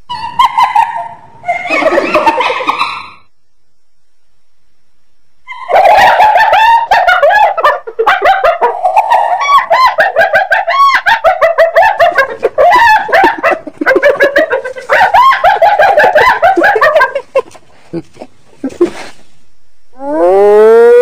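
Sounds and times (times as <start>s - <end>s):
hyena giggling: 1.6s - 3.2s, 5.9s - 19.2s.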